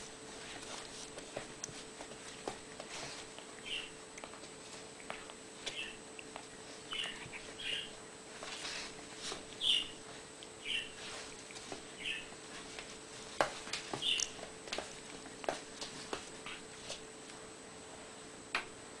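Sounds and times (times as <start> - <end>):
light sharp clicks and scuffs: 12.5 - 17.0.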